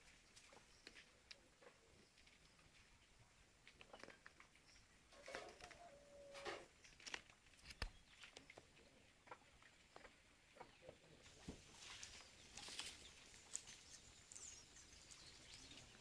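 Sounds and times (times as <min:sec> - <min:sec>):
leaves rustling: 0:11.2 - 0:16.0.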